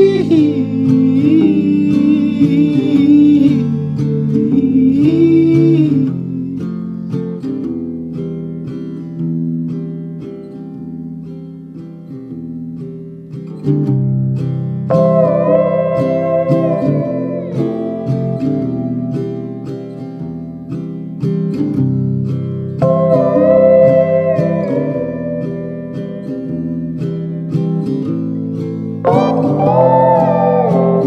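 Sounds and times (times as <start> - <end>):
person singing: 0.0 - 7.0, 14.9 - 19.3, 29.0 - 31.0
acoustic guitar folk music: 0.0 - 31.0.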